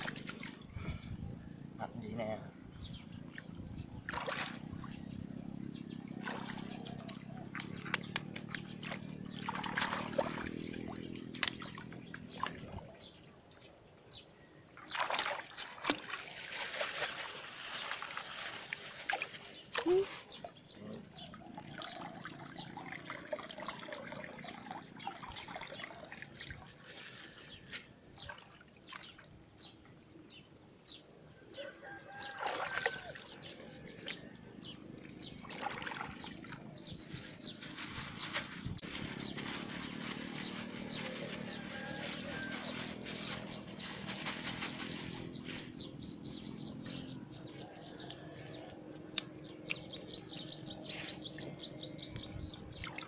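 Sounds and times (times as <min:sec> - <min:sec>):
water sloshing and dripping: 0:00.0 - 0:00.7, 0:03.3 - 0:05.0, 0:06.1 - 0:12.9, 0:14.8 - 0:29.5, 0:32.3 - 0:38.4
plastic bag crinkling: 0:37.6 - 0:45.8.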